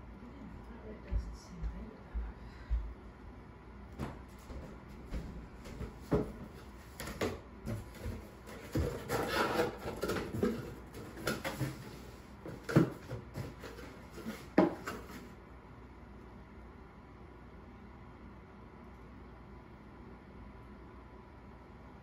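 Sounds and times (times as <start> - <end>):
objects knocking and rubbing: 5.6 - 15.3.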